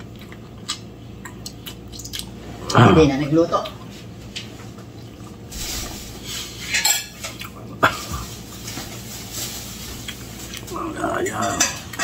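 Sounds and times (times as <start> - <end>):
dishes and utensils clattering: 5.6 - 10.0, 11.0 - 12.0.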